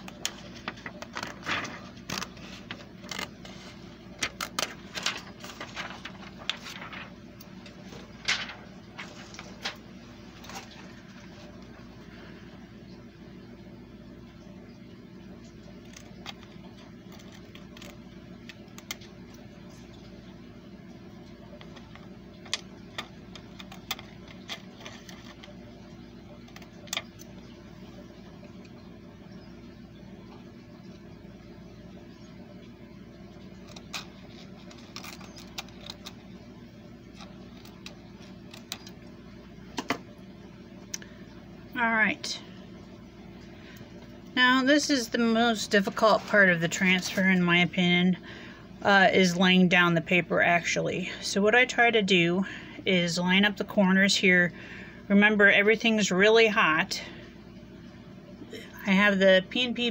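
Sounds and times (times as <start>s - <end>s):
plastic film crinkling: 0.0s - 11.6s, 15.8s - 19.2s, 33.5s - 36.4s
steady low hum: 0.0s - 59.9s.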